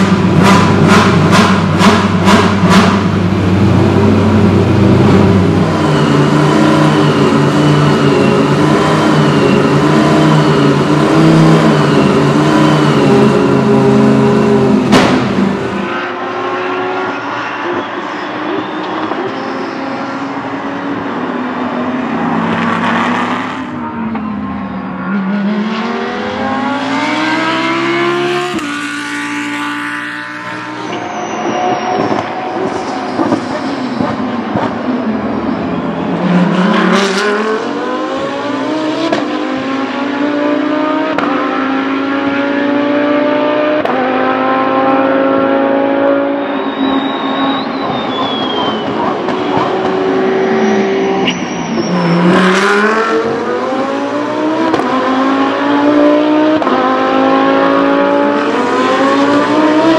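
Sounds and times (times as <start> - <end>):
engines revving through gears: 0.0 - 17.9, 25.0 - 35.1, 36.0 - 59.9
race cars passing: 0.0 - 59.9.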